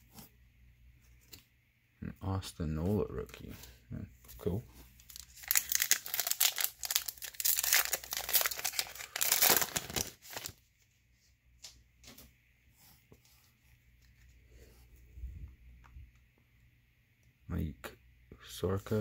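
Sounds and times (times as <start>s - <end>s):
plastic wrapper tearing and crinkling: 5.0s - 10.6s.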